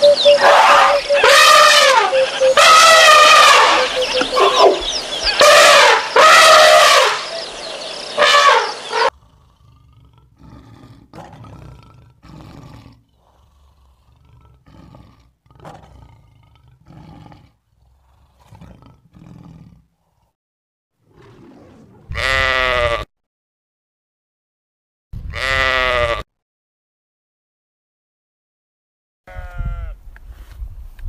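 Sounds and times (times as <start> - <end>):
elephants trumpeting: 0.0 - 9.2
lion calling: 0.0 - 19.7
sheep bleat: 22.1 - 23.1, 25.3 - 26.3, 29.3 - 30.0.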